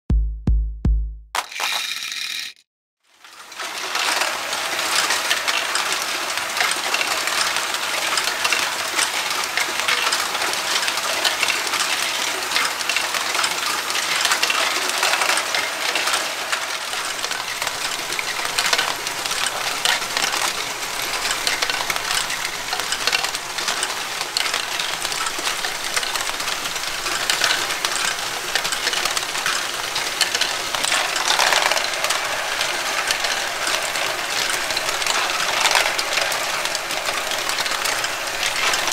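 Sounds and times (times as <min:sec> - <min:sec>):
plastic balls clattering: 0:01.4 - 0:02.6, 0:03.6 - 0:38.9.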